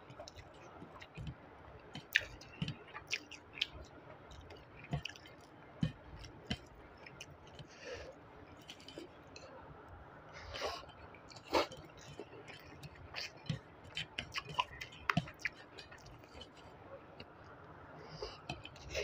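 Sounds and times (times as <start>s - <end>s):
fingers squishing rice: 0.0s - 7.8s
mouth chewing: 0.0s - 9.5s, 10.4s - 19.0s.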